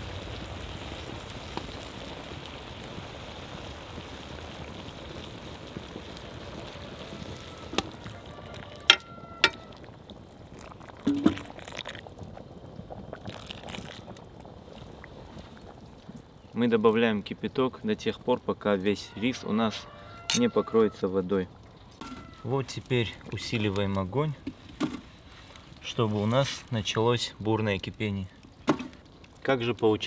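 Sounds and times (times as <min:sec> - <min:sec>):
water pouring from kettle: 0:02.6 - 0:15.8.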